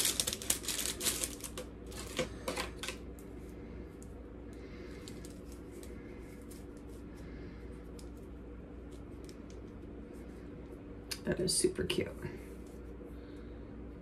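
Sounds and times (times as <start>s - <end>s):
bracelet clicks and rustles: 0.0s - 3.0s
low room hum: 0.0s - 14.0s.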